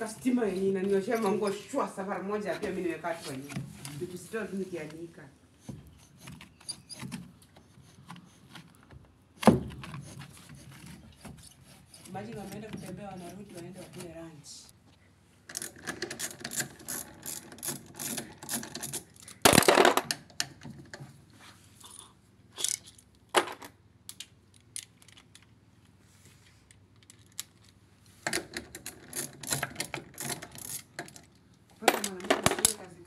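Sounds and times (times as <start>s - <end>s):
tools and screws clattering: 15.5s - 21.1s, 22.6s - 25.5s, 27.0s - 32.9s.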